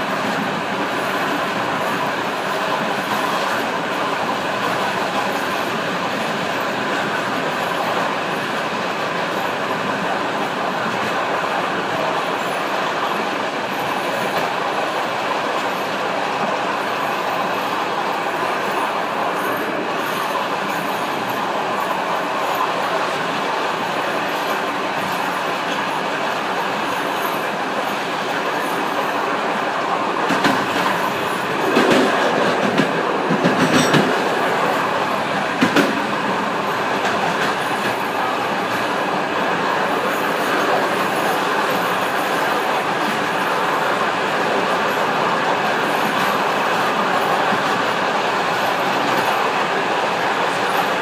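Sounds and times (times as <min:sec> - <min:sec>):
train rolling rumble and hiss: 0:00.0 - 0:51.0
train wheels clattering over points: 0:30.2 - 0:38.9.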